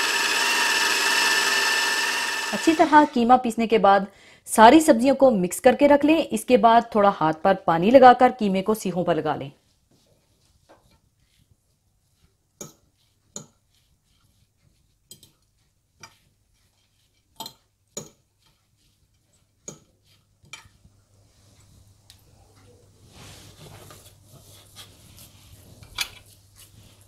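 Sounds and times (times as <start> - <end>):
soft rustle: 9.6 - 17.3, 18.4 - 27.0.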